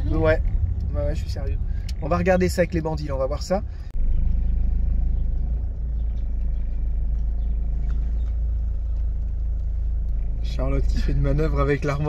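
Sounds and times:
car engine low rumble: 0:00.0 - 0:12.0.

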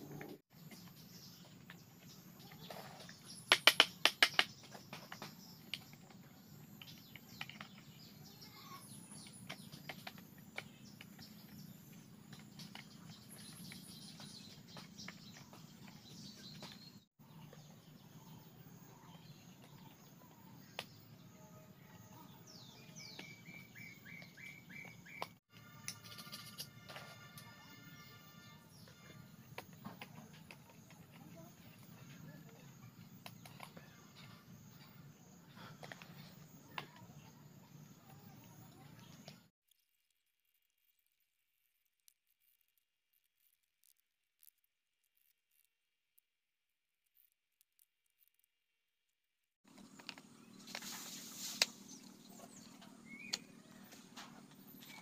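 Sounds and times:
birds chirping: 0:00.0 - 0:26.6, 0:49.7 - 0:55.0
bamboo slats clicking and knocking: 0:03.4 - 0:06.2.

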